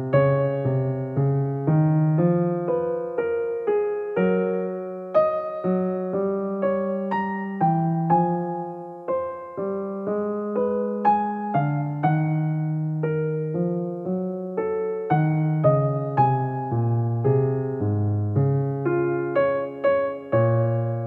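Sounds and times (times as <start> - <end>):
slow gentle piano melody: 0.0 - 21.0.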